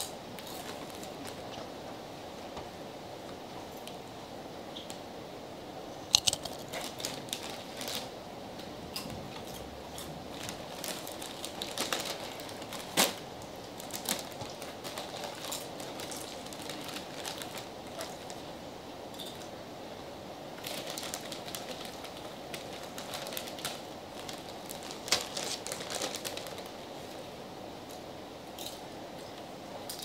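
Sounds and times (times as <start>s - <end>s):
plastic chip bags crinkling: 0.0s - 1.6s, 6.1s - 8.2s, 9.4s - 18.5s, 20.6s - 27.2s.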